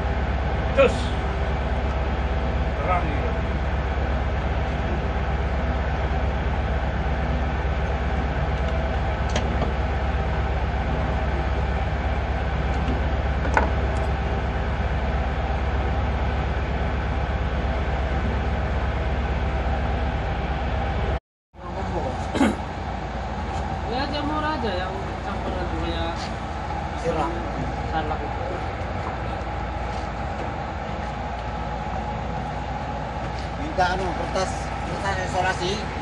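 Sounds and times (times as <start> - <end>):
ship machinery drone: 0.0 - 36.0.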